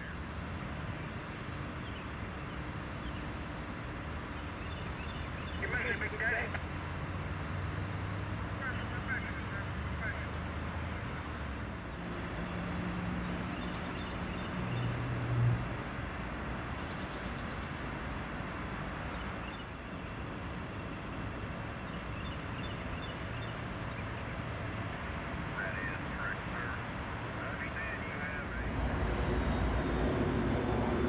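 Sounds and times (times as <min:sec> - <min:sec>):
freight train rumbling past: 0:28.5 - 0:31.0.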